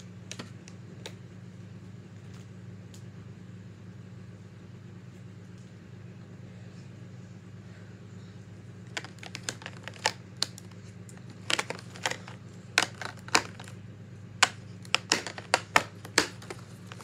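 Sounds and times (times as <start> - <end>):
steady low hum: 0.0 - 17.0
plastic markers clicking: 14.4 - 17.0.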